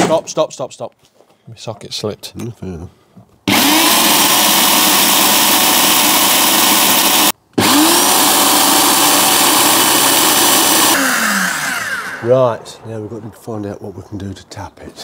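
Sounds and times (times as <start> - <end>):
electric drill drilling into metal: 3.5 - 12.3.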